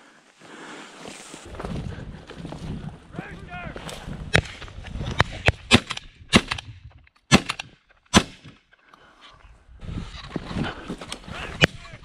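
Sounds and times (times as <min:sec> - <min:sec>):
shotgun shots: 0:05.2 - 0:06.7, 0:07.3 - 0:08.5.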